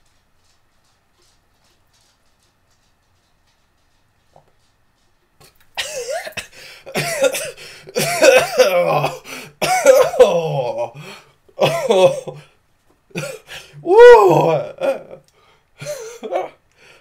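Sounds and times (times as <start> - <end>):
man coughing and hacking: 5.8 - 12.5, 13.1 - 15.2, 15.8 - 16.6.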